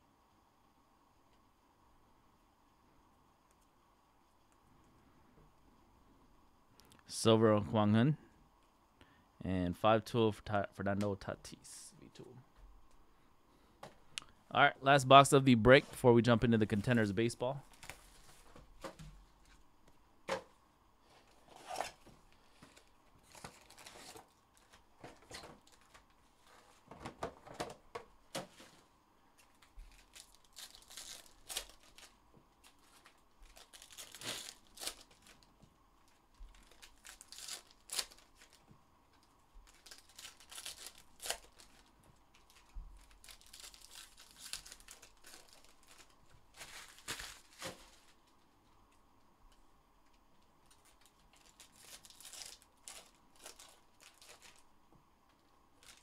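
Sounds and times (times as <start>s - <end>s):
wrappers ripping and crinkling: 21.4s - 26.8s, 29.4s - 48.4s, 50.6s - 54.7s, 55.8s - 56.0s.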